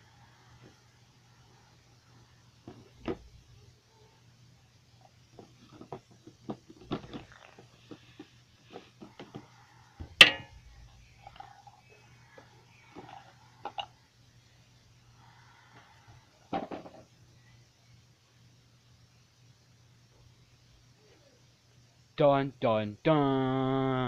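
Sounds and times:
faint steady hum: 0.0s - 24.0s
plastic toys clattering: 5.4s - 9.4s.

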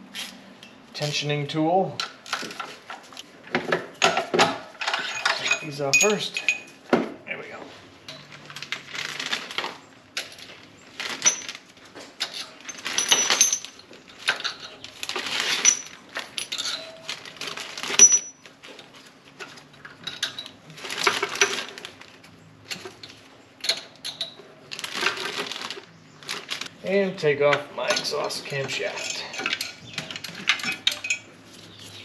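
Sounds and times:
socket wrench clinking and scraping: 4.0s - 6.8s.

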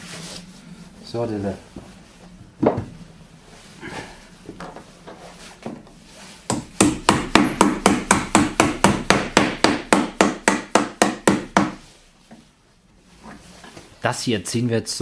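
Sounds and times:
hammer tapping on wood: 6.5s - 11.8s.

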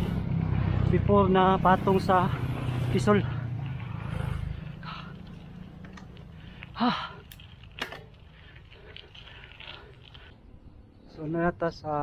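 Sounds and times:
person breathing hard: 2.4s - 5.4s
voiced gasp or grunt: 6.6s - 7.3s.

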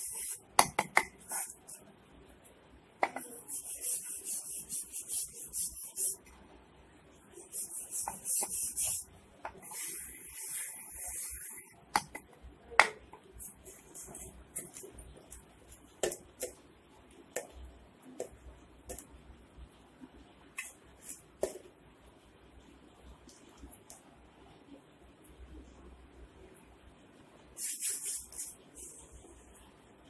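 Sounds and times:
hands rubbing flour on wooden board: 3.2s - 6.2s.

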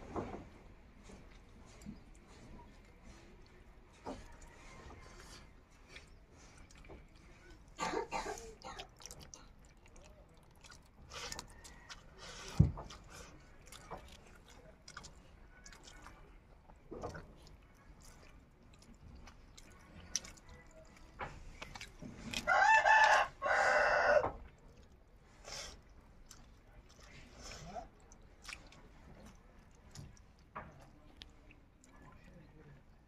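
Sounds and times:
rooster crowing: 22.4s - 24.4s.

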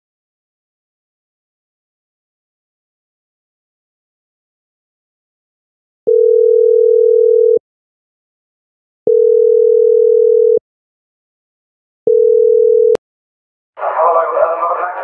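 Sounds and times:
telephone line beep: 6.1s - 7.6s, 9.1s - 10.6s, 12.1s - 13.0s.

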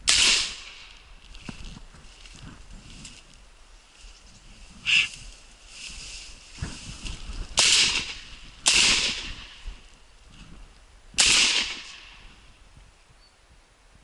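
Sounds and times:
shotgun shots with echo: 0.1s - 0.8s, 7.6s - 9.6s, 11.2s - 12.2s.

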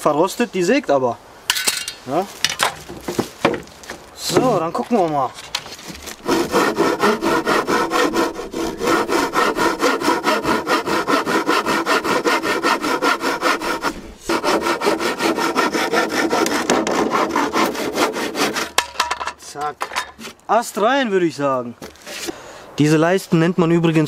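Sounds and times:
hand saw cutting wood board: 5.5s - 19.1s.

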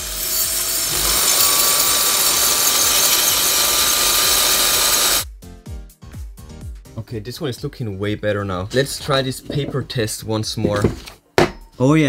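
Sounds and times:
drill motor whine: 0.0s - 5.2s
metal grinding on sharpening plate: 0.0s - 5.2s.

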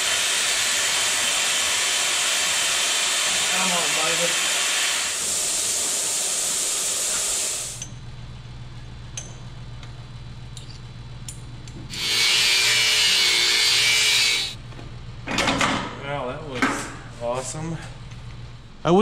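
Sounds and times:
power tool cutting metal: 0.0s - 7.8s, 11.9s - 14.6s.

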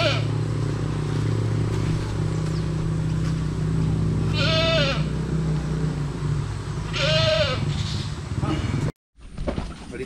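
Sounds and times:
farm animal bleating: 0.0s - 0.5s, 4.1s - 5.4s, 6.9s - 8.7s.

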